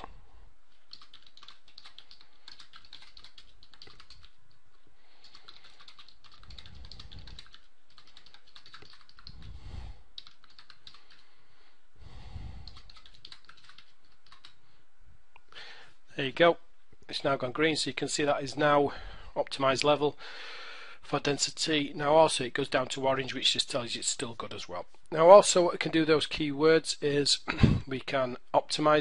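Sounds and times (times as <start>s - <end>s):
typing on computer keyboard: 0.8s - 4.6s, 5.2s - 9.5s, 10.2s - 11.2s, 12.6s - 14.6s.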